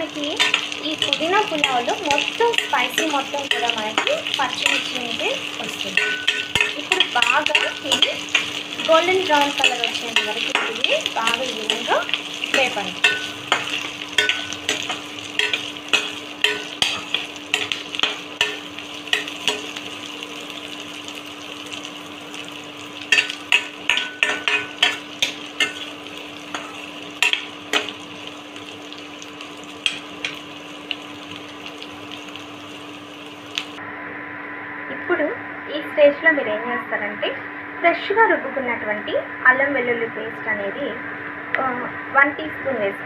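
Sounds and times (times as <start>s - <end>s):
onions sizzling in oil: 0.0s - 33.8s
steady low hum: 0.0s - 43.0s
spatula clinking and scraping pot: 0.3s - 19.9s, 23.1s - 28.0s.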